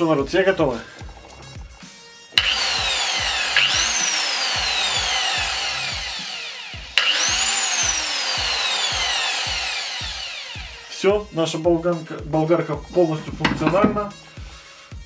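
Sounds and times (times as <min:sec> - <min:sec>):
angle grinder whining: 0:00.6 - 0:11.3.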